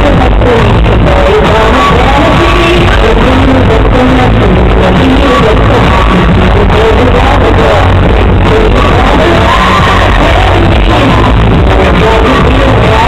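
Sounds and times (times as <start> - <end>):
muffled amplified pop music: 0.0 - 13.0
woman singing into microphone: 0.0 - 13.0.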